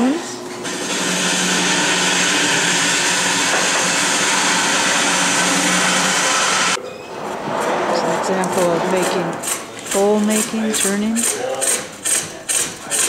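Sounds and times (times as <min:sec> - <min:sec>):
motor whooshing and humming: 0:00.6 - 0:11.2.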